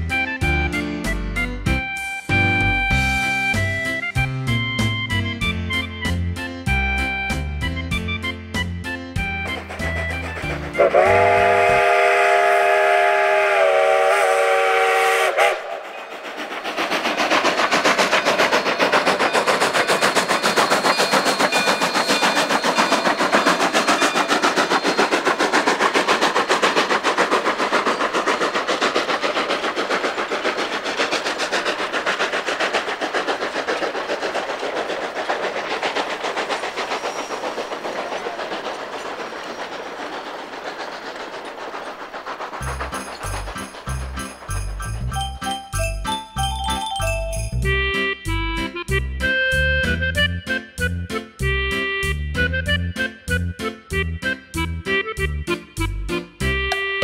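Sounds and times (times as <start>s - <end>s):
steam locomotive whistle chord: 0.1s - 16.1s, 46.5s - 57.0s
train wheels clacking on rails: 2.2s - 57.0s.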